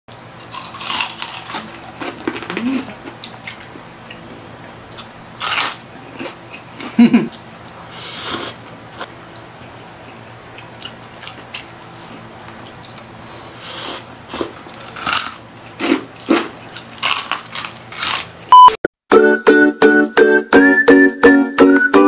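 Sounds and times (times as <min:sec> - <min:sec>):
crunchy bites: 0:00.4 - 0:03.7, 0:05.4 - 0:06.4, 0:14.3 - 0:18.4
chewing: 0:00.5 - 0:04.2, 0:09.3 - 0:13.1.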